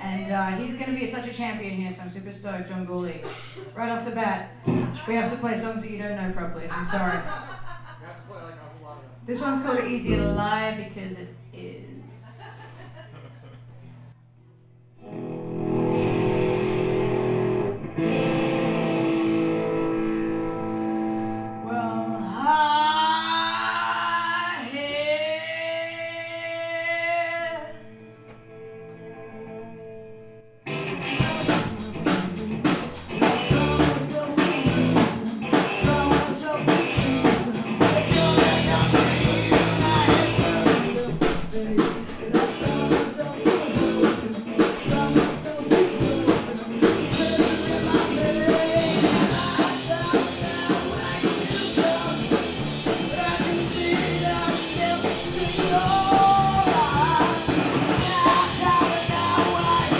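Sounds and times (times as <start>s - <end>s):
woman singing: 9.7s - 11.0s, 21.6s - 28.0s, 31.2s - 52.4s, 53.1s - 59.9s
punk rock band playing: 10.0s - 10.6s, 15.0s - 21.6s, 30.7s - 59.9s.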